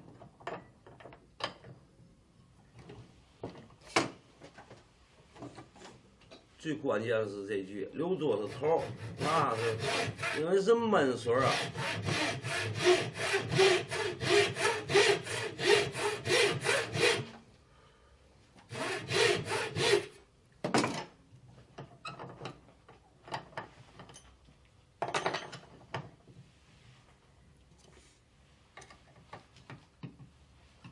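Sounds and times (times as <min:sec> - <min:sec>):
frame saw cutting wood: 0:08.2 - 0:10.6, 0:11.2 - 0:17.3, 0:18.7 - 0:20.2.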